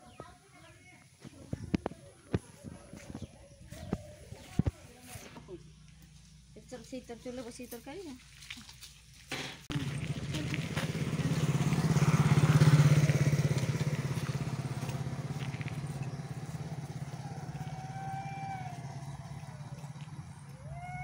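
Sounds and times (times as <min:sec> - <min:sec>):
vehicle engine passing: 0:09.7 - 0:21.0.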